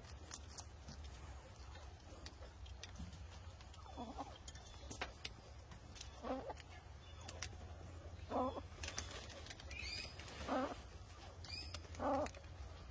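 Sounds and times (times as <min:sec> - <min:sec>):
low bird calls: 0:03.6 - 0:12.9.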